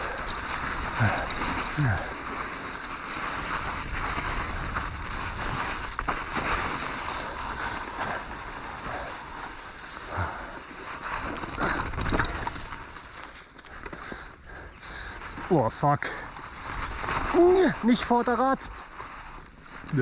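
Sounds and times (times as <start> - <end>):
tyres hissing through snow: 0.0 - 12.5, 14.1 - 20.0
bike knocks and rattles: 11.2 - 13.1.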